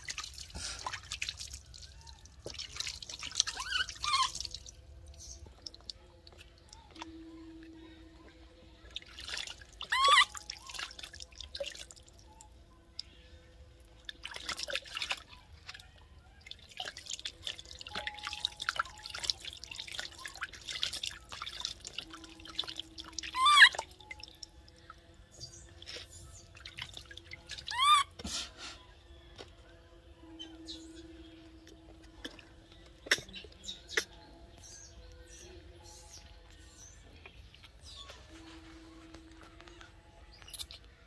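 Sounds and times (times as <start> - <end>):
water splashing and dripping: 0.0 - 7.2, 8.8 - 28.1, 31.3 - 34.2
infant monkey high-pitched cry: 3.4 - 4.6, 9.8 - 11.0, 23.2 - 23.9, 27.6 - 28.2.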